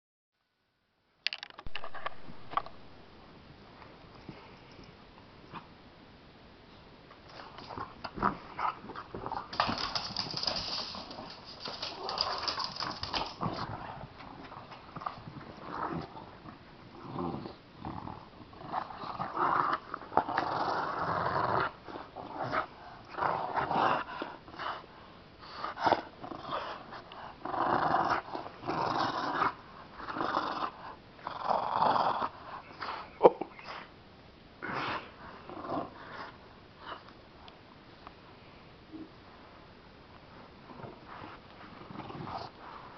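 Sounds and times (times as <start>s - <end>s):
dogs growling in play: 7.3s - 33.9s, 34.6s - 37.2s, 40.7s - 42.9s.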